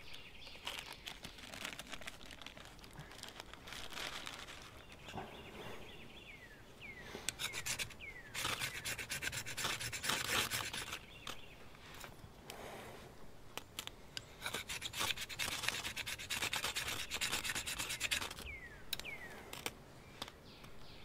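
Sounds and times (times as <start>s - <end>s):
knife scraping wooden stick: 7.3s - 11.4s, 14.4s - 18.5s.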